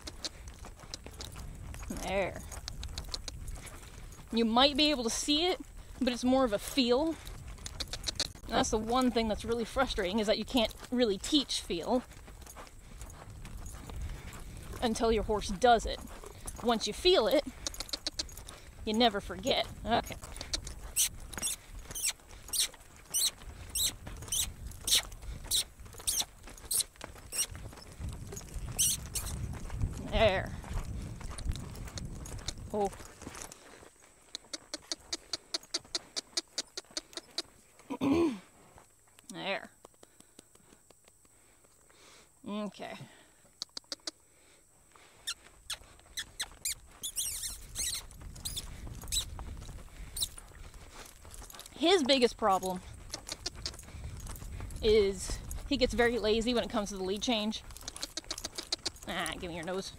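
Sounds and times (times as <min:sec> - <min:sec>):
saddle leather creaking: 0:00.0 - 0:06.0, 0:07.0 - 0:38.1, 0:45.2 - 0:59.9
hooves rumbling in dirt: 0:00.0 - 0:59.9
high squeaky chirps: 0:20.4 - 0:27.6, 0:28.7 - 0:29.4, 0:45.2 - 0:49.3, 0:50.2 - 0:50.4.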